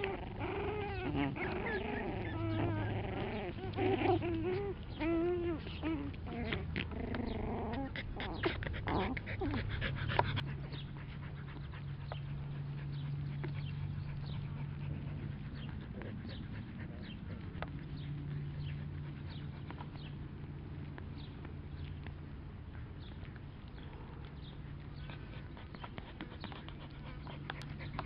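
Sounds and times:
puppies growling and whining: 0:00.0 - 0:28.0.

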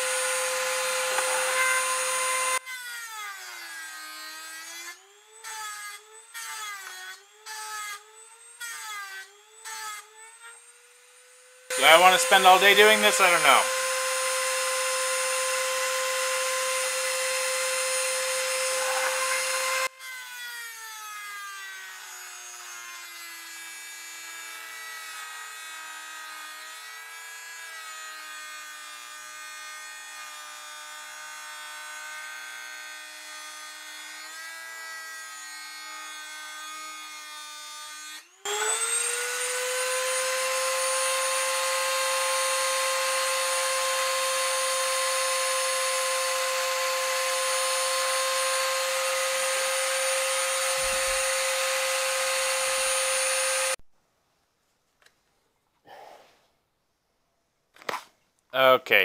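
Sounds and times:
rotary tool high whine: 0:00.0 - 0:02.6, 0:03.6 - 0:19.9, 0:38.2 - 0:53.8.

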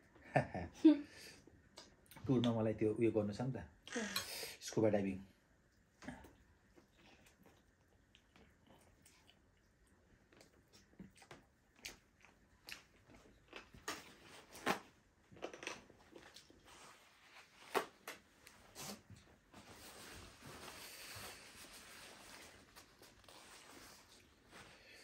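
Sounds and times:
people chewing and biting: 0:06.0 - 0:16.9.

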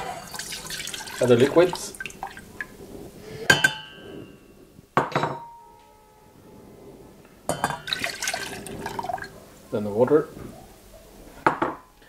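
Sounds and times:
glass jug clinking on metal pot: 0:00.0 - 0:02.7, 0:03.5 - 0:04.0, 0:07.5 - 0:09.3.

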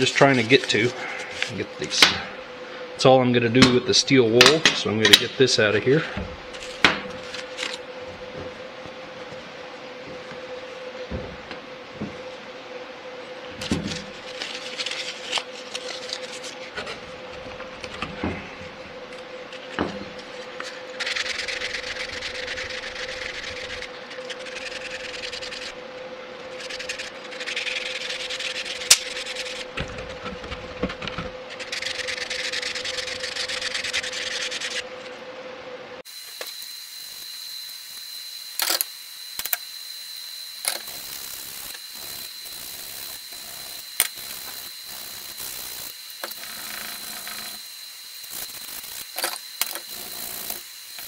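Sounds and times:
steady hum: 0:00.0 - 0:51.0
sandpaper scratching on metal: 0:21.0 - 0:25.8, 0:26.5 - 0:30.3, 0:31.5 - 0:34.8.

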